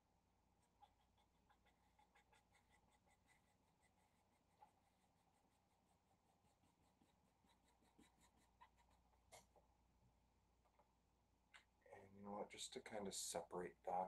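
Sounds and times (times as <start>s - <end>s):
marker scratching on paper: 0.6s - 9.2s.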